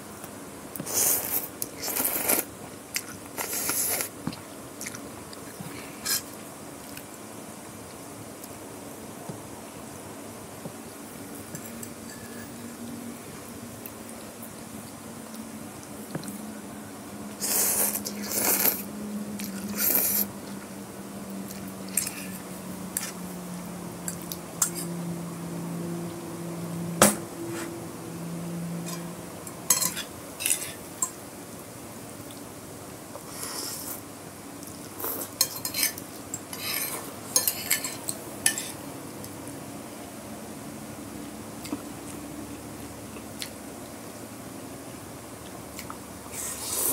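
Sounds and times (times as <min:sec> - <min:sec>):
cutlery scraping a glass plate: 0:11.6 - 0:12.5, 0:29.7 - 0:30.8, 0:35.4 - 0:38.8.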